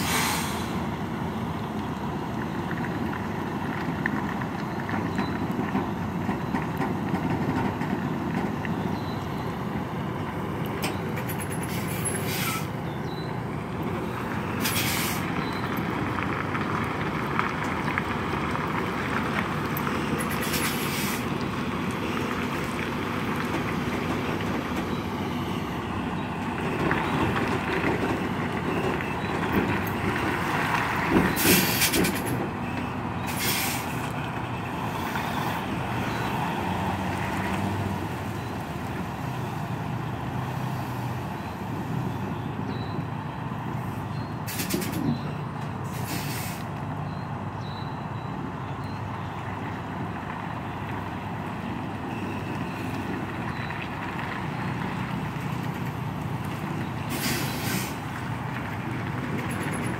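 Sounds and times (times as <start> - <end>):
air brake hisses: 0.0 - 0.8, 11.6 - 12.7, 14.6 - 15.3, 20.4 - 21.2, 31.4 - 32.2, 33.3 - 34.0, 44.5 - 45.0, 45.9 - 46.7, 57.1 - 58.0
diesel truck engine running: 0.0 - 59.9.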